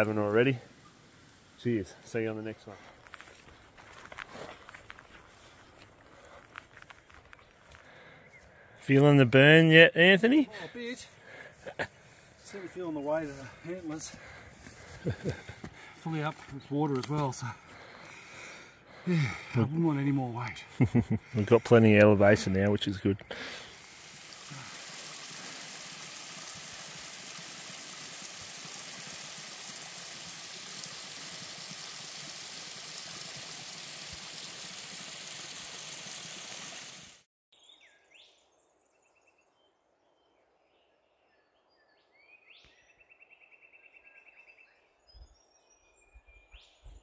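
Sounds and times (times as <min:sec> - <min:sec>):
creek running over rocks: 0:21.4 - 0:37.3.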